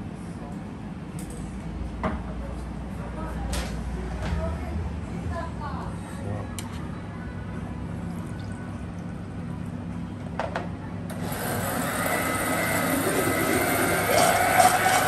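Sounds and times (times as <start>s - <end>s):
blender motor running: 11.1s - 15.0s
juice pouring into blender jar: 11.2s - 15.0s.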